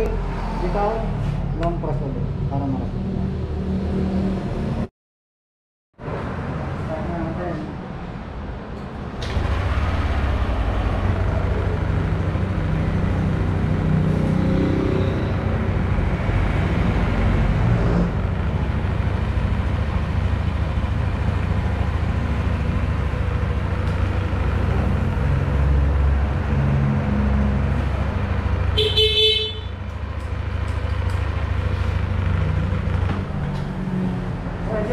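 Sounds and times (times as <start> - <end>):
scooter engine idling: 9.3 - 16.0, 18.2 - 25.9.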